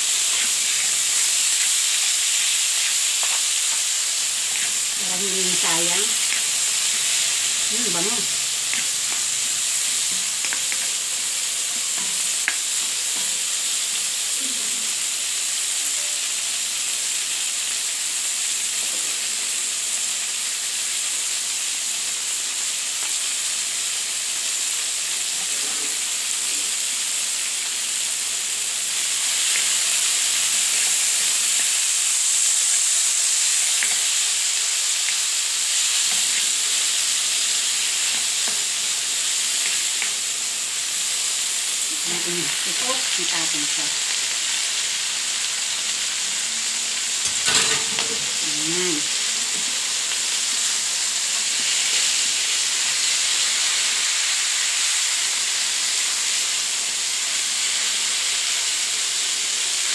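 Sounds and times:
food sizzling in a wok: 0:00.0 - 0:59.9
spatula stirring: 0:00.1 - 0:03.8, 0:04.5 - 0:05.0.

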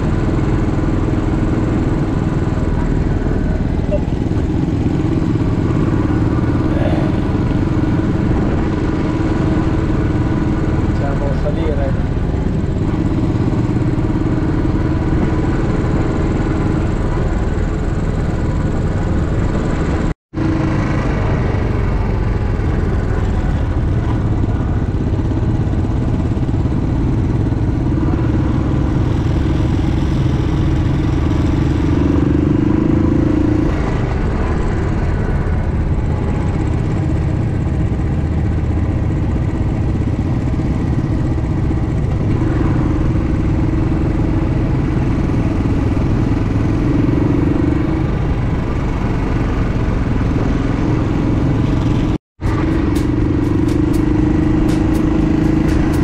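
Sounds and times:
motorcycle engine running: 0:00.0 - 0:56.0
wind and road noise: 0:00.0 - 0:56.0.

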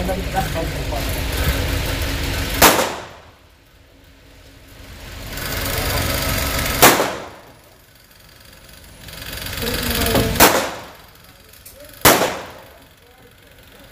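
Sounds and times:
background hum: 0:00.0 - 0:13.9
gunshots echoing indoors: 0:02.6 - 0:03.3, 0:06.8 - 0:07.4, 0:10.4 - 0:11.0, 0:12.0 - 0:12.7.

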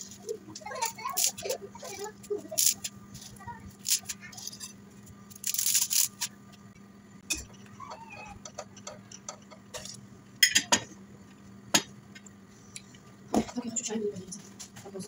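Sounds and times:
dry spaghetti rustling: 0:00.0 - 0:06.4.

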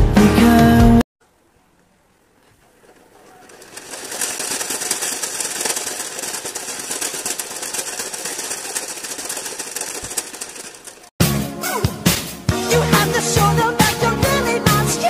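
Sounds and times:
treadmill rollers clattering: 0:02.7 - 0:11.1.

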